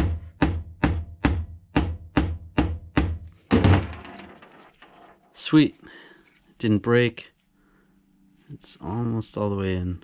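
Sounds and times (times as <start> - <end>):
hammer tapping a pin punch: 0.0 - 3.3.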